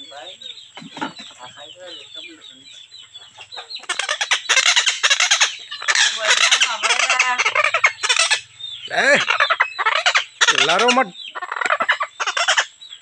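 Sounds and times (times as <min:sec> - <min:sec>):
parrots squawking and screeching: 0:03.1 - 0:12.8.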